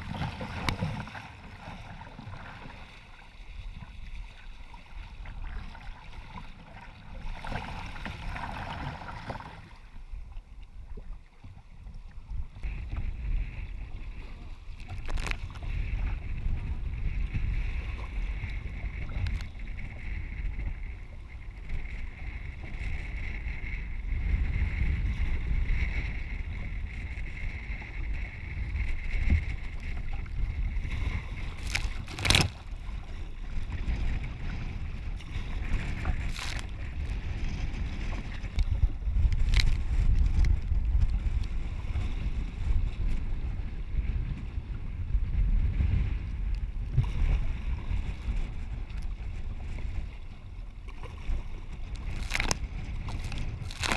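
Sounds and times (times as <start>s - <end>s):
waves sloshing against hull: 0.0s - 53.9s
wind buffeting microphone: 12.0s - 53.9s
sharp water splashes: 36.2s - 36.8s, 52.0s - 53.9s.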